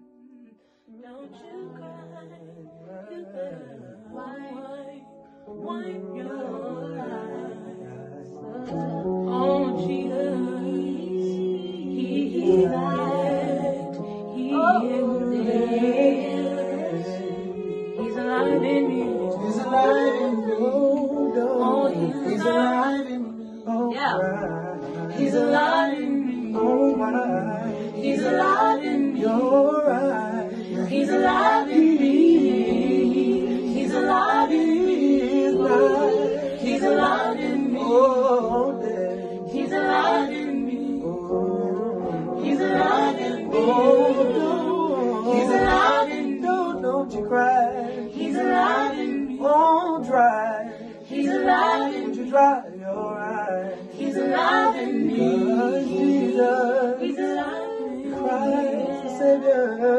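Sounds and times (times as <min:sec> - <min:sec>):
gospel group singing in harmony: 0:00.0 - 0:59.9.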